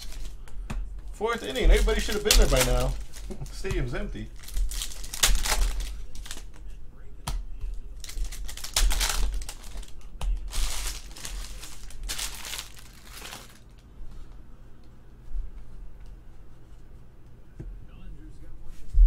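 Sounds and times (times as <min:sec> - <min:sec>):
foil wrapper crinkling and tearing: 0:00.0 - 0:00.4, 0:01.3 - 0:06.6, 0:08.0 - 0:13.8.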